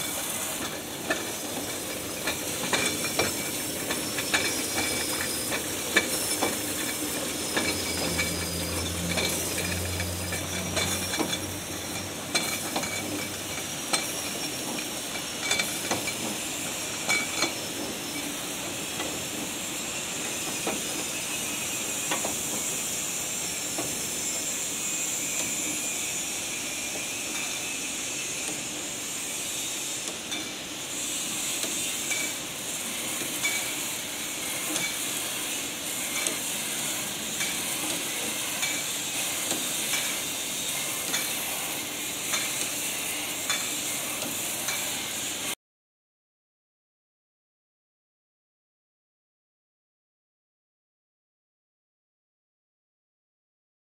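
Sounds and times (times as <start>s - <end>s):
hiss of rinse spray: 18.0s - 45.5s.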